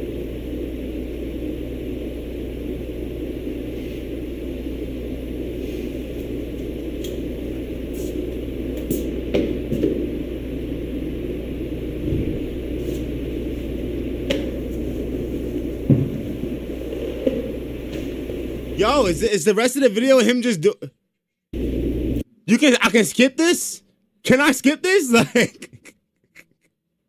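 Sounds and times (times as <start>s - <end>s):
low rumbling background noise: 0.0s - 19.3s.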